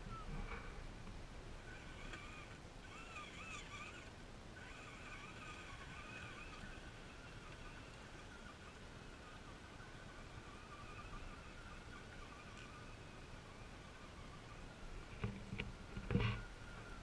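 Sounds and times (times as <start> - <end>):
electric motor and gears whining: 0.0 - 17.0.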